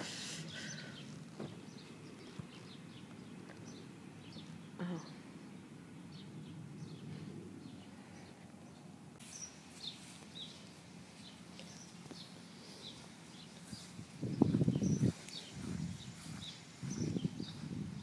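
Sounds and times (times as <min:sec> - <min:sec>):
low steady outdoor rumble: 0:00.0 - 0:18.0
small birds chirping: 0:00.0 - 0:18.0.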